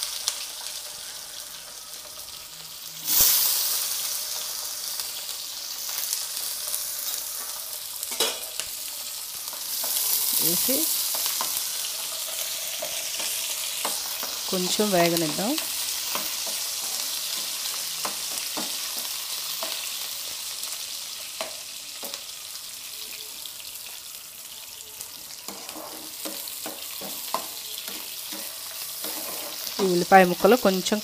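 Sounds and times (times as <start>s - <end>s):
onions sizzling in hot oil: 0.0s - 31.0s
spatula stirring in pan: 11.0s - 20.3s, 25.3s - 30.6s.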